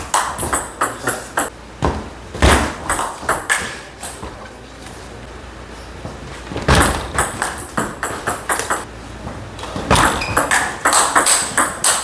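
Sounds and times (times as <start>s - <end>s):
ball bouncing on table: 0.1s - 3.8s, 6.7s - 8.9s, 9.9s - 12.0s
table tennis ball clicking: 7.2s - 8.9s.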